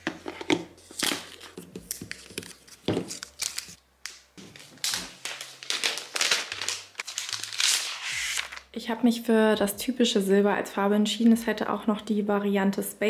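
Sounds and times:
packaging crinkling and rustling: 0.0s - 8.7s.

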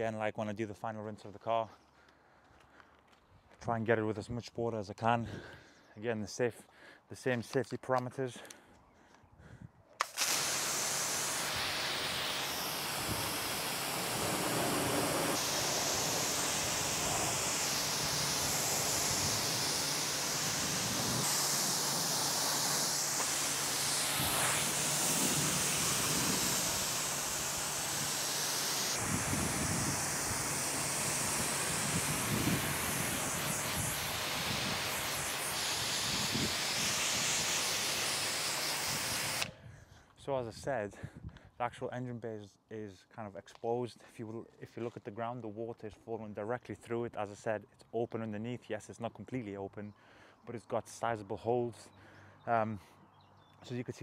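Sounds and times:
pressure washer spraying water: 10.0s - 39.5s.

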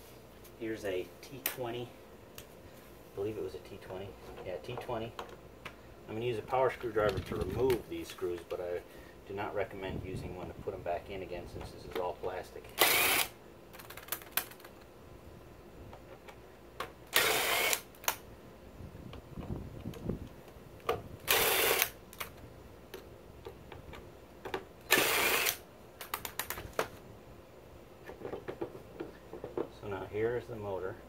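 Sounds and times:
power screwdriver spinning: 12.8s - 13.3s, 17.1s - 17.9s, 21.3s - 22.0s, 24.9s - 25.6s
handling clicks and taps: 28.0s - 29.7s.

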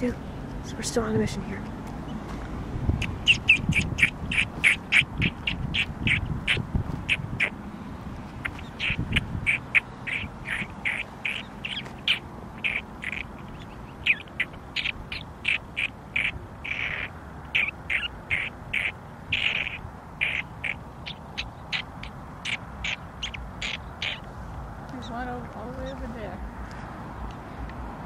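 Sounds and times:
prairie dog alarm barks: 3.0s - 7.6s, 8.4s - 24.3s.

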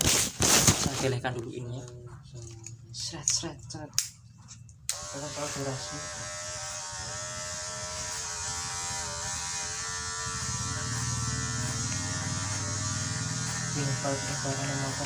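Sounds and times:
electric hair clipper buzzing: 4.9s - 15.0s.

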